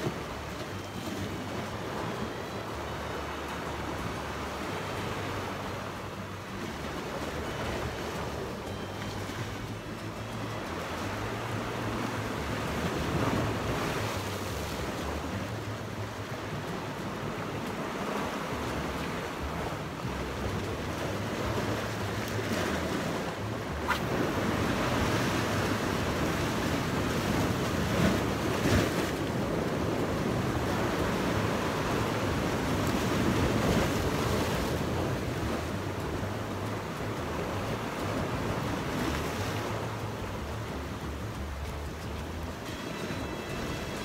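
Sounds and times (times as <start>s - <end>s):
sea waves breaking on rocks: 0.0s - 44.0s.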